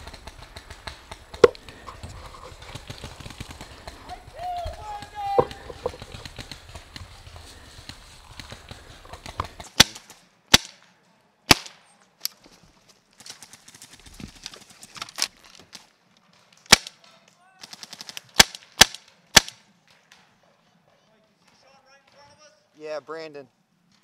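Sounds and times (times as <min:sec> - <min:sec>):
paintball markers firing: 0:00.0 - 0:02.0, 0:02.6 - 0:10.8.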